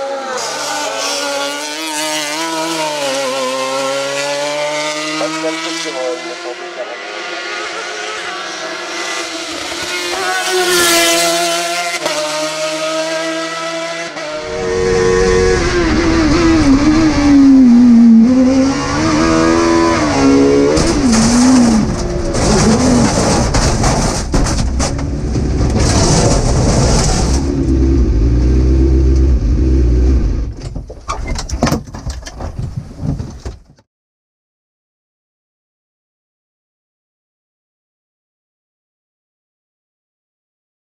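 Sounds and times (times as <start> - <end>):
race car engine revving: 0.0 - 30.6.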